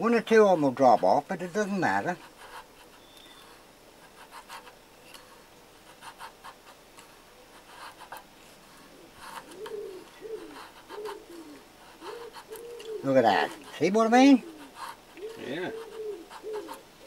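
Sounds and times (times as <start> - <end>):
pigeon cooing: 6.1 - 17.0.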